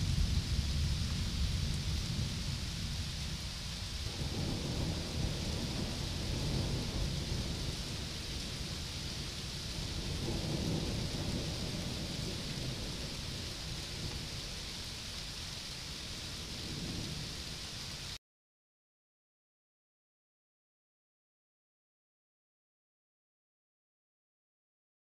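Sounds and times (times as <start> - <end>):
low thunder rumbling: 0.0 - 17.8
rain hissing: 0.0 - 18.2.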